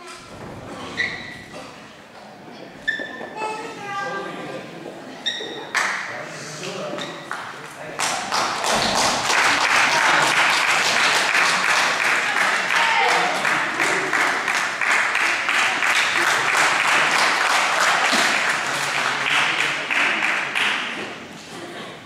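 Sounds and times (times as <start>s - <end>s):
crowd clapping: 5.7s - 6.0s, 6.6s - 21.3s
voices: 9.3s - 22.0s.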